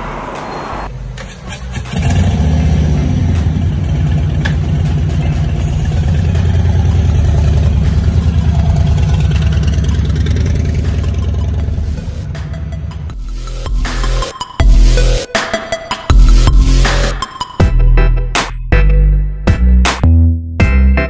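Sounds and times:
motorcycle engine rumbling: 0.9 - 14.3.

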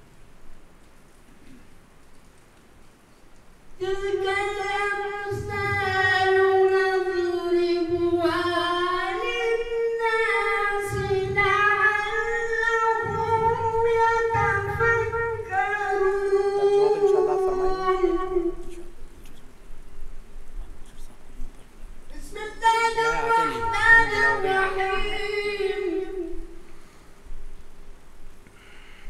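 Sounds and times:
man chanting melodically: 3.8 - 19.4, 20.7 - 26.6.

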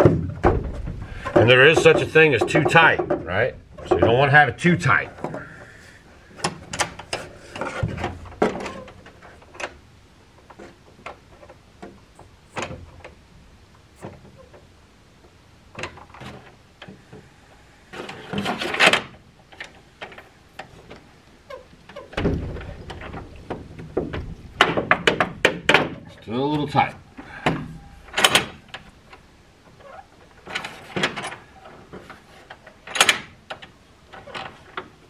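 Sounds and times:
metal scraping rattle: 0.0 - 5.4, 17.9 - 33.4
metal hardware clicks and knocks: 27.4 - 29.2, 30.4 - 34.9.

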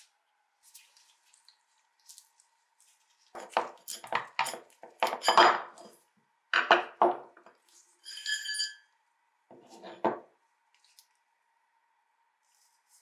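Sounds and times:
metal scraping and clinking: 8.0 - 8.9.

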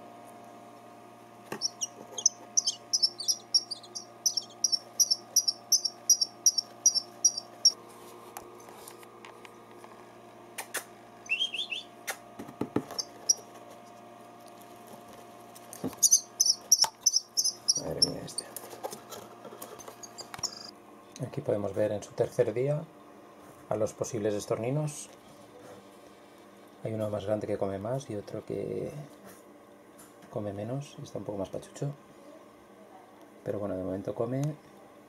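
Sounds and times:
nestling birds begging chirps: 1.5 - 7.8, 11.2 - 12.0, 16.0 - 18.4.

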